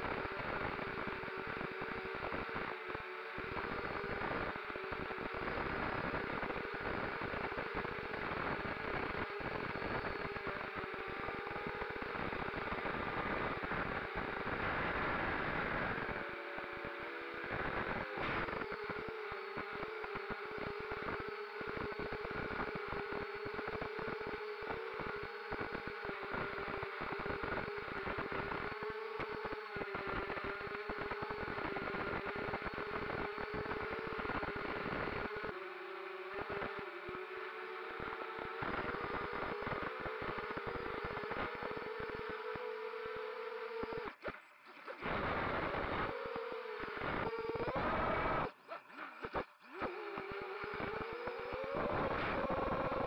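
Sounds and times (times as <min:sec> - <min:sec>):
drone motors whining: 0:36.4 - 0:53.0.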